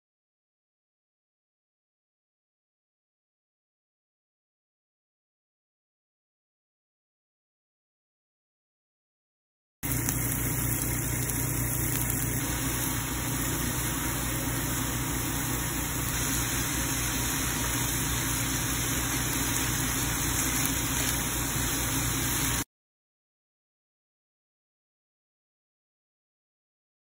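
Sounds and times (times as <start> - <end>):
low steady hum: 9.8 - 22.5
food sizzling in a pan: 9.8 - 22.7.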